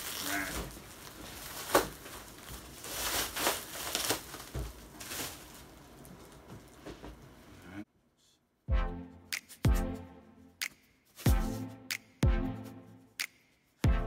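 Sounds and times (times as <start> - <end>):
plastic packaging crinkling: 0.0 - 6.8.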